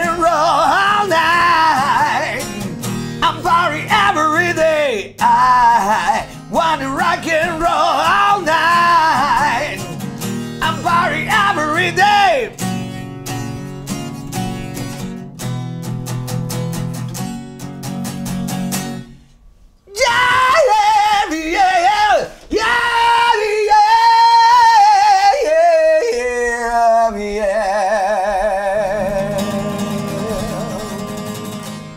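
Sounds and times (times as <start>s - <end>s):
high wordless singing voice: 0.0s - 12.7s, 19.8s - 31.9s
acoustic guitar strumming: 0.0s - 25.6s, 28.1s - 31.9s.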